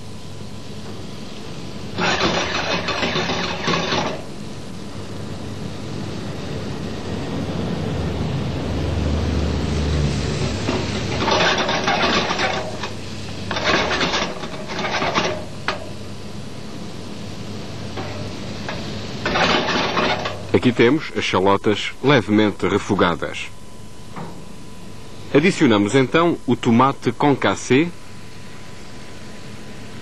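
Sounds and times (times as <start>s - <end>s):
shallots sizzling in butter: 1.3s - 4.3s
wooden spoon scraping pan: 2.0s - 4.3s, 10.5s - 15.5s, 18.0s - 20.5s.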